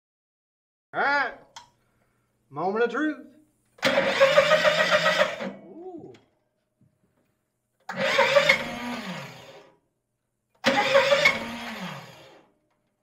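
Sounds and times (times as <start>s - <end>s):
engine electric starter cranking: 3.8s - 5.6s, 7.8s - 9.8s, 10.6s - 12.6s.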